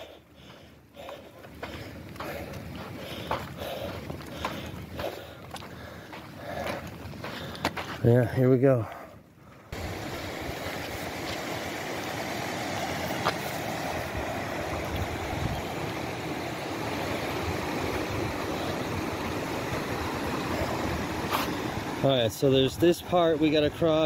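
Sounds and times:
river rushing: 0:09.8 - 0:24.0.

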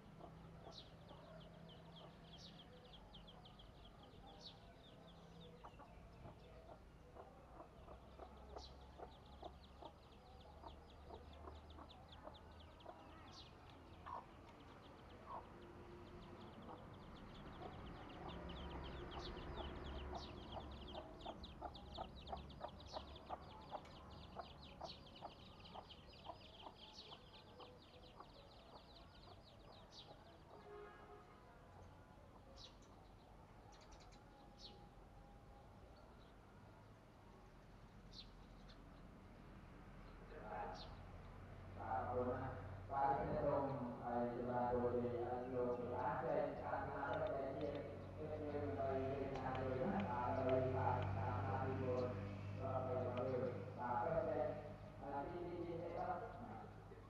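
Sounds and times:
chicken clucking: 0:05.6 - 0:13.1, 0:14.0 - 0:14.4, 0:17.5 - 0:29.4.

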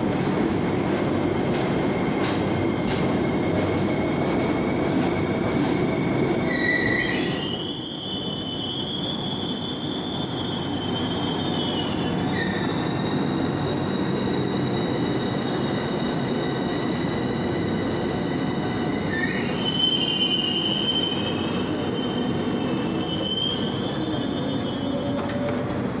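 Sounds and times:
train rumble: 0:00.0 - 0:07.0, 0:21.4 - 0:26.0
high metallic squeal: 0:06.5 - 0:25.6.

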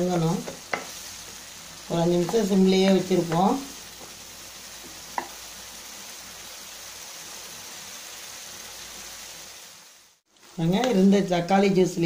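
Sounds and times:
pickle sizzling in oil: 0:00.0 - 0:12.0.

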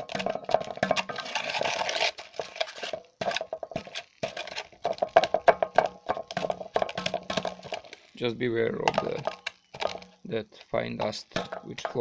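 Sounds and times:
metal pincers scraping in bucket: 0:00.0 - 0:04.8.

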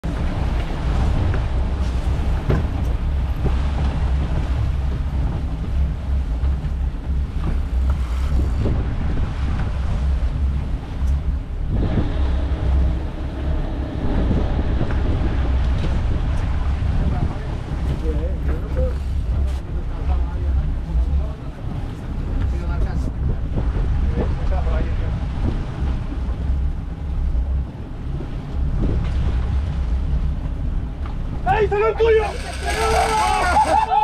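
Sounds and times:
motor boat engine droning: 0:00.0 - 0:34.0
water rushing in wake: 0:00.0 - 0:34.0
wind buffeting microphone: 0:00.0 - 0:34.0.

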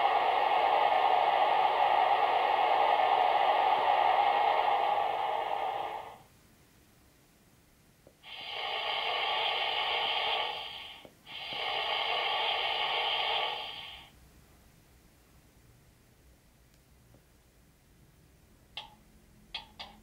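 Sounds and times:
compressed-air hiss: 0:08.2 - 0:14.2.

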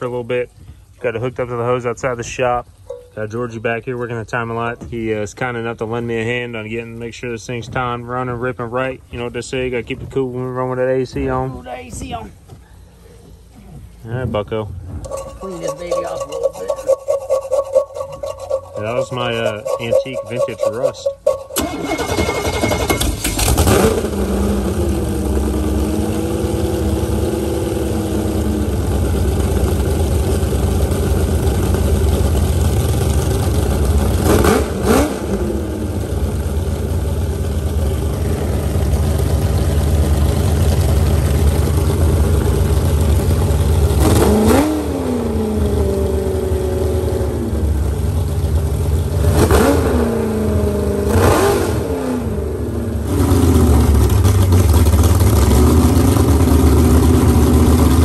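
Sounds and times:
boat engine idling: 0:00.0 - 0:49.3, 0:52.6 - 0:58.0
engine revving: 0:18.7 - 0:58.0.

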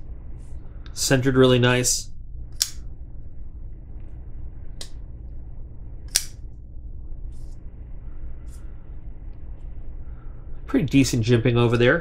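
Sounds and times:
folding knife blade clicks: 0:02.6 - 0:02.8, 0:06.1 - 0:06.4.

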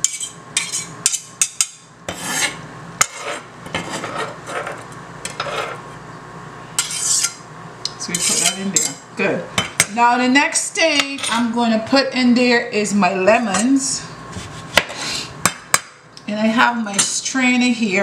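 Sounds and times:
knife scraping cutting board: 0:00.0 - 0:01.3, 0:02.1 - 0:05.9, 0:06.8 - 0:07.4, 0:08.1 - 0:08.7, 0:14.3 - 0:15.2.

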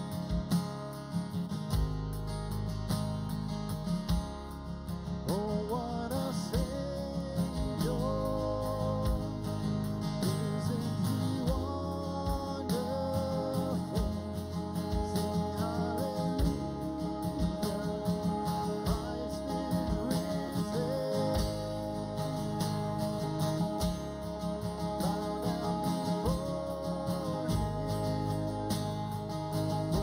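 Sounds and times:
strummed acoustic guitar: 0:00.0 - 0:30.0
person singing hymn melody: 0:10.3 - 0:22.5, 0:24.8 - 0:28.8.

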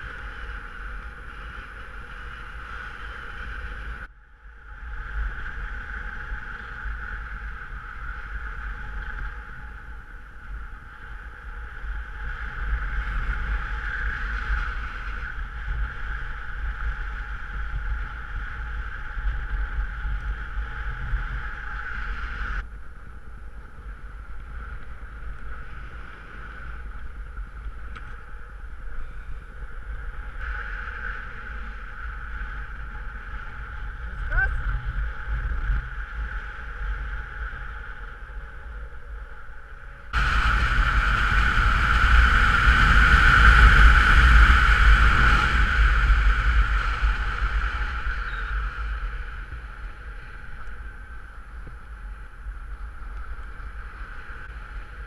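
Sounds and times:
airflow hissing and buffeting: 0:40.2 - 0:50.2.

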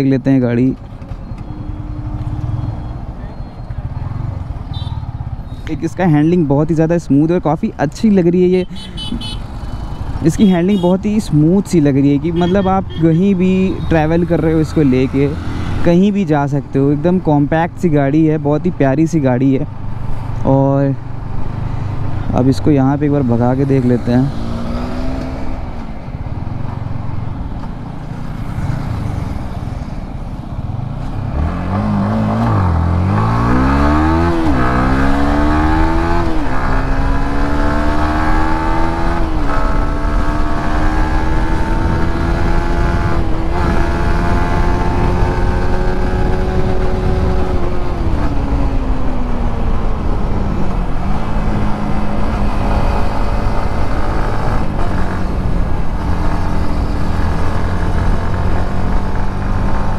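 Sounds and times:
motorcycle engine accelerating: 0:31.0 - 0:59.9
wind rush: 0:41.0 - 0:54.0.

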